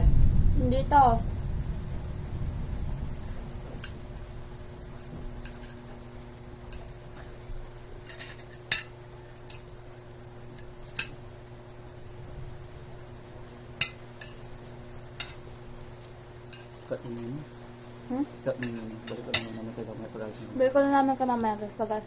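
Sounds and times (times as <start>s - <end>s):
low hum: 0.0s - 22.0s
cutlery clinking on plates: 18.5s - 19.7s.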